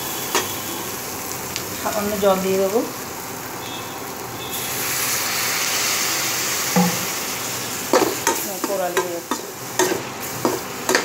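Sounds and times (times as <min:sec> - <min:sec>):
hot oil sizzling in a pan: 0:00.0 - 0:11.0
spatula knocking on pan: 0:06.8 - 0:07.1.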